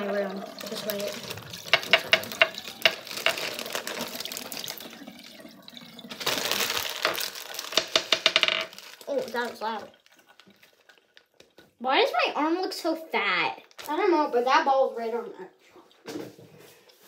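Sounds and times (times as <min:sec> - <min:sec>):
tap water running into sink: 0:00.0 - 0:11.8
wet plastic bag crinkling: 0:00.0 - 0:11.8, 0:13.6 - 0:14.3.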